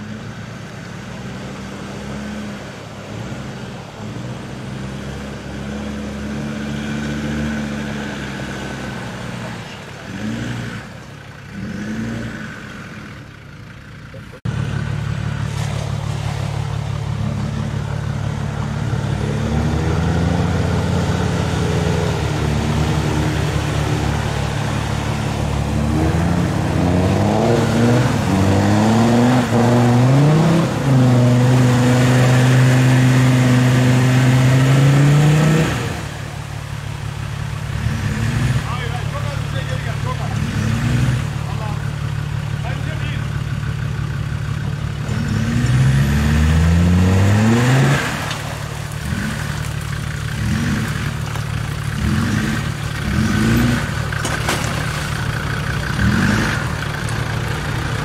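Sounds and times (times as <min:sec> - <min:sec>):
diesel engine revving hard: 0:01.0 - 0:13.2, 0:14.4 - 0:58.0
mud and water thrown up: 0:15.2 - 0:42.1, 0:45.1 - 0:58.0.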